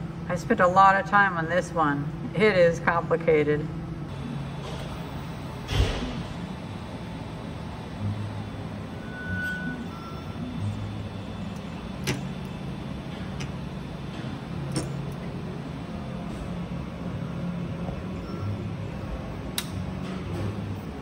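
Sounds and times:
fans running: 0.0 - 21.0
stepper motors humming: 3.7 - 21.0.

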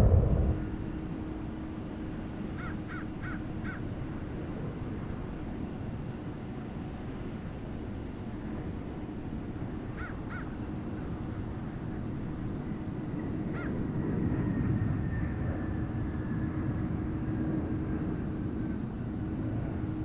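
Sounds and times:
high whine falling in pitch: 0.0 - 0.9
distant jet engine rumble: 0.0 - 2.0.

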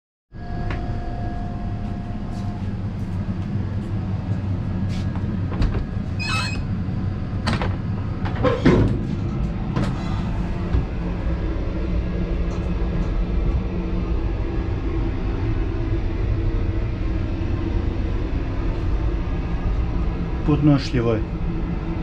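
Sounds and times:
train coach rumble and rattle: 0.6 - 22.0
door squeaking: 6.2 - 6.7.

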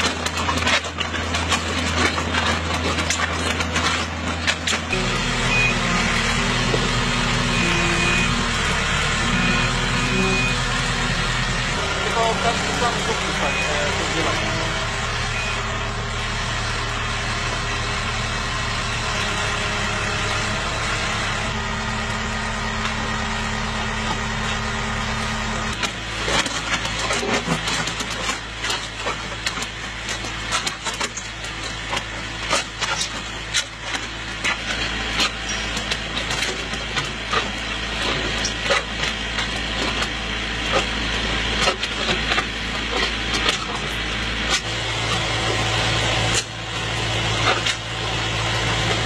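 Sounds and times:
clicks and knocks of concrete: 0.0 - 5.0, 25.7 - 44.7
deep engine hum: 0.0 - 49.0
loader engine running: 0.0 - 49.0.

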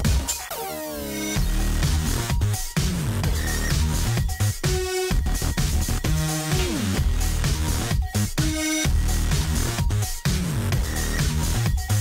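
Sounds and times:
electronic dance music: 0.0 - 12.0.

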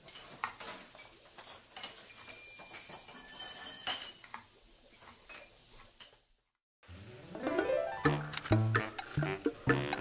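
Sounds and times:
dishes and cutlery clinking: 0.0 - 6.3.

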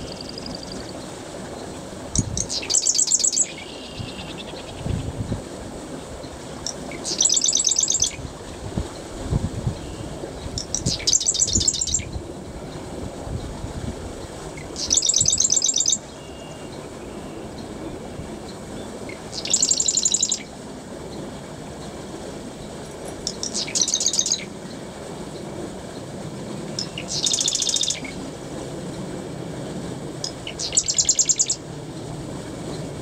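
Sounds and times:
marsh wren rattling trills: 2.2 - 4.9, 6.6 - 8.2, 10.6 - 12.1, 14.7 - 16.0, 19.1 - 20.5, 23.2 - 24.5, 26.8 - 28.2, 30.2 - 31.6.

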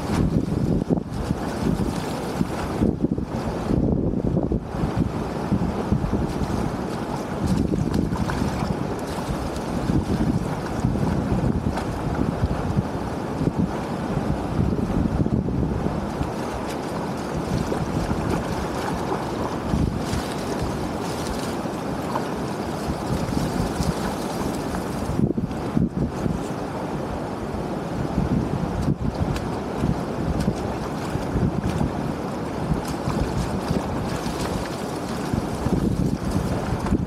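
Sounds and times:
water rushing: 0.0 - 3.8, 4.6 - 15.0, 15.7 - 25.9, 26.5 - 37.0
wind buffeting microphone: 0.0 - 37.0.

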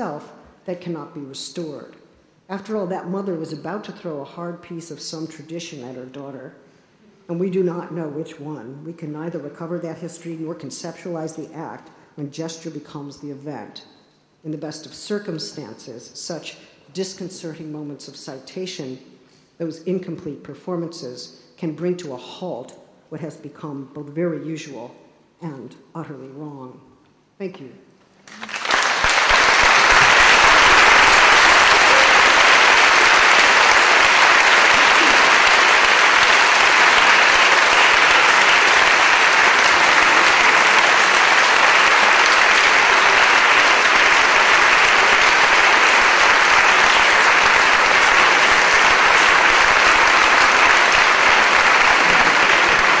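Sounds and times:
audience applauding: 28.3 - 53.0.

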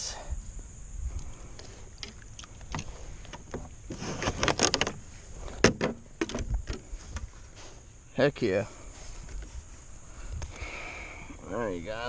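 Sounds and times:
gear rattling on plastic kayak: 2.0 - 7.3.

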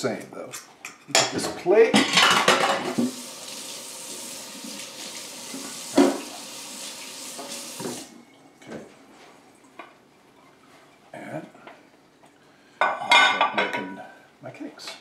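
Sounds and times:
tap running into a sink: 2.9 - 6.6, 7.2 - 8.1.

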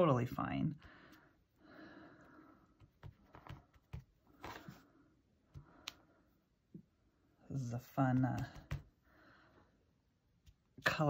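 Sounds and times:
stamp block tapping: 8.2 - 8.9.

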